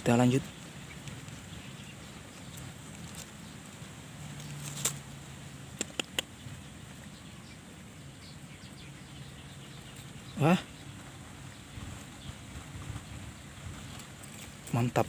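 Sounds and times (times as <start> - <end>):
sharp clicks: 5.8 - 6.3.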